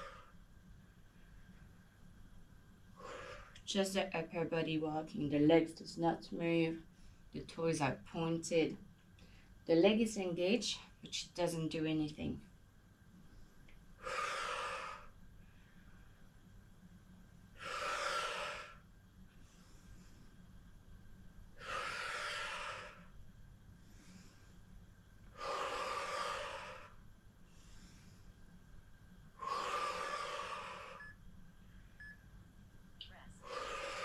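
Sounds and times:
woman breathing hard: 0:00.0 - 0:00.4, 0:03.0 - 0:03.6, 0:13.5 - 0:16.1, 0:17.5 - 0:20.6, 0:21.5 - 0:23.2, 0:23.8 - 0:28.6, 0:29.3 - 0:31.2, 0:33.4 - 0:34.0.

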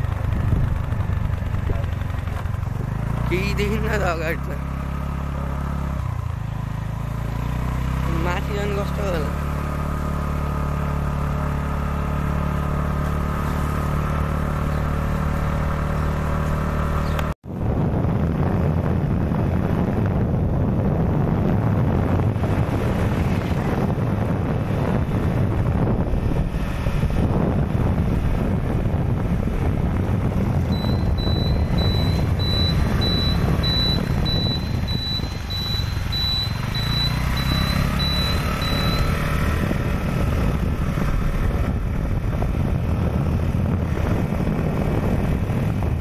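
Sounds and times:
wind buffeting microphone: 0:00.0 - 0:03.3, 0:17.5 - 0:46.0
motorbike engine running: 0:00.0 - 0:46.0.

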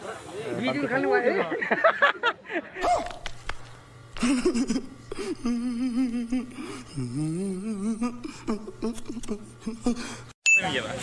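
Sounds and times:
faint steady hum: 0:00.0 - 0:10.4
man whining: 0:04.2 - 0:10.3.

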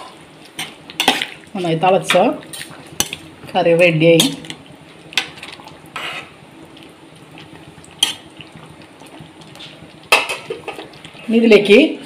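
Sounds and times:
spatula scraping steel pan: 0:06.0 - 0:06.3.

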